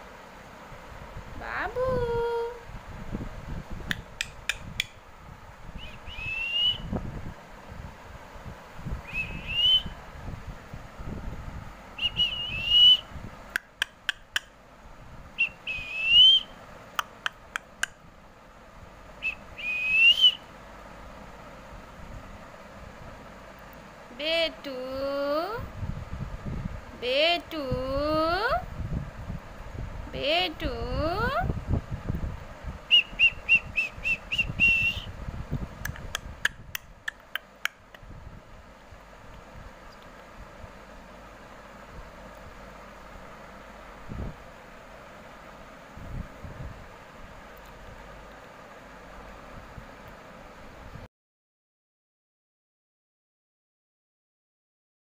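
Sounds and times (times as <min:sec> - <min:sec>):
sharp clicks: 0:03.9 - 0:05.0, 0:13.5 - 0:14.6
rising whistle: 0:05.8 - 0:06.9, 0:09.1 - 0:10.0, 0:12.0 - 0:13.1, 0:15.4 - 0:16.6, 0:19.2 - 0:20.4, 0:32.9 - 0:35.1.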